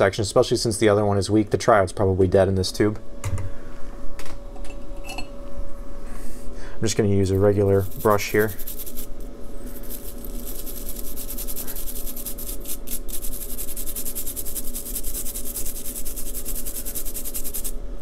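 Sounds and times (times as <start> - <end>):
brush scrubbing metal pins: 7.4 - 9.1, 9.7 - 17.7.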